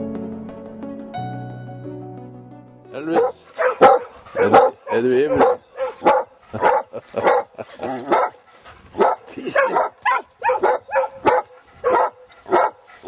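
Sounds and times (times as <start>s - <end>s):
dog barking: 3.1s - 8.4s, 9.0s - 12.8s.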